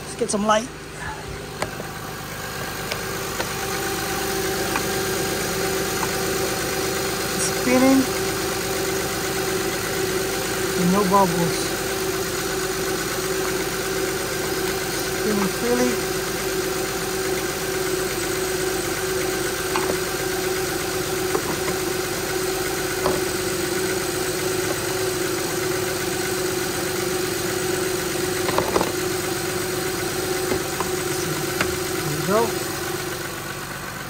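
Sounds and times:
car engine idling: 0.0s - 34.0s
power steering pump turning: 0.9s - 34.0s.

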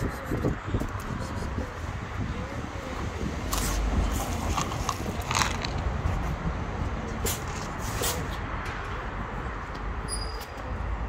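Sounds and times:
street rumble: 0.0s - 11.0s.

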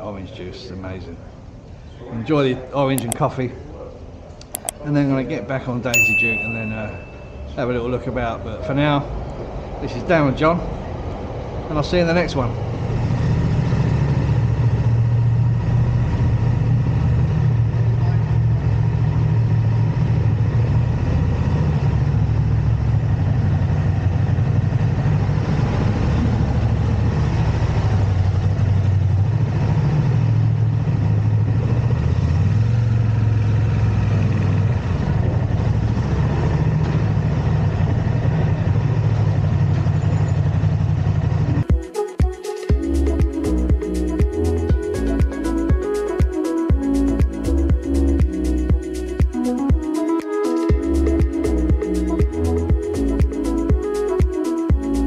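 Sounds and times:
vehicle engine running: 12.8s - 41.7s.

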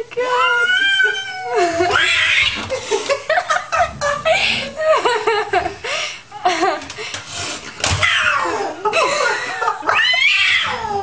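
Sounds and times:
people laughing and squealing: 1.2s - 6.9s.

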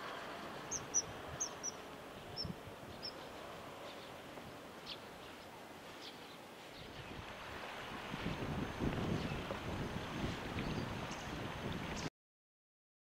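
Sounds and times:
steady background hiss: 0.0s - 11.8s
kingfisher calling: 0.7s - 4.2s.

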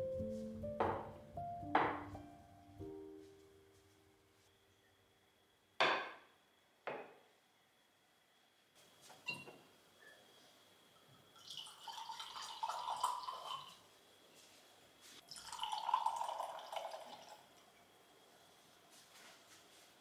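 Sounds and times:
wine pouring into glass: 11.4s - 13.8s, 15.2s - 17.7s.

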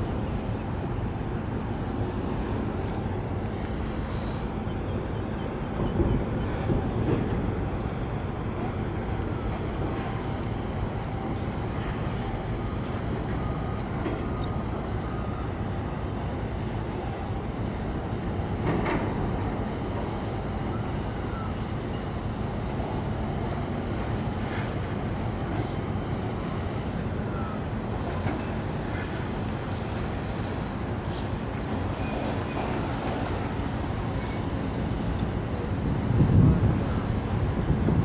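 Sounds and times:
low harbour rumble: 0.0s - 38.0s.

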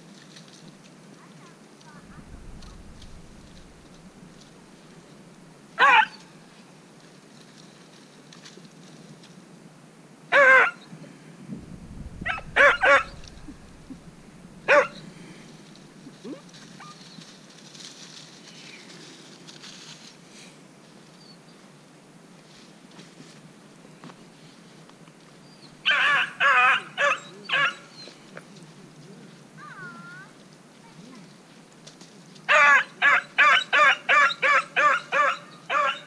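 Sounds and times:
hound barking: 5.8s - 6.2s, 10.3s - 10.8s, 12.2s - 15.1s, 25.8s - 27.9s, 32.5s - 36.0s.

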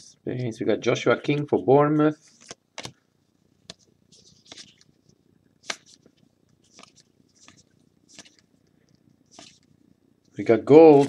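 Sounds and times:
cards swishing against each other: 3.7s - 4.9s, 5.6s - 8.5s, 9.3s - 9.7s, 10.8s - 11.0s.

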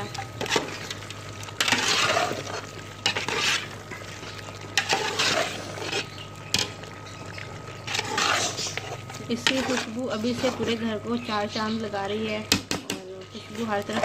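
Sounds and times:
metal spoon scraping cooking pot: 1.6s - 3.7s, 4.8s - 6.2s, 7.9s - 10.8s.

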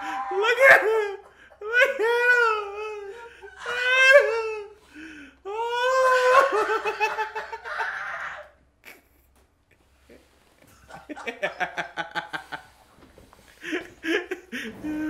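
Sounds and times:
man laughing hard: 0.0s - 9.1s, 10.8s - 12.7s, 13.6s - 15.0s.

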